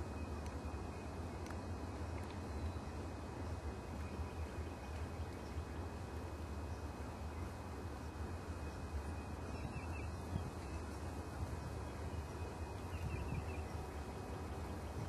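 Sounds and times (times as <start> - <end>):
steady low rumble: 0.0 - 15.0
faint high bird chirps: 12.0 - 13.9.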